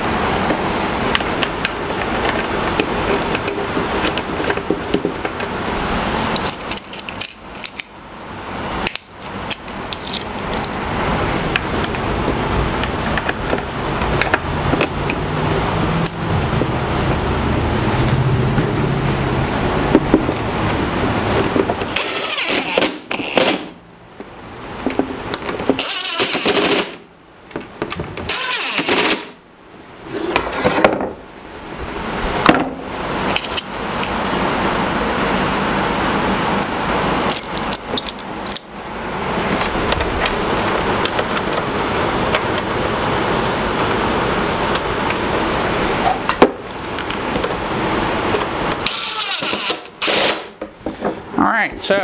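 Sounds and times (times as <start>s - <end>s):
cordless drill driving screws: 22.0s - 23.7s, 25.8s - 27.0s, 28.3s - 29.3s, 48.8s - 50.6s.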